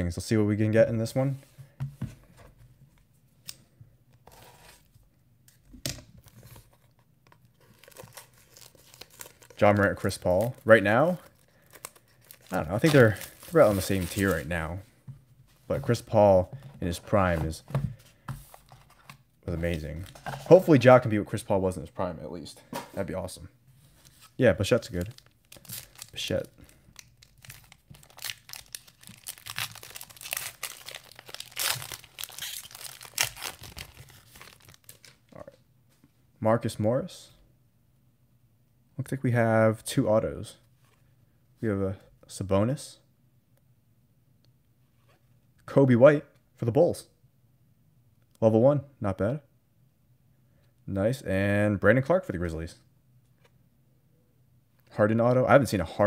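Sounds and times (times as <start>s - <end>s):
shrink-wrap crinkling: 7.6s - 14.6s, 24.1s - 35.3s.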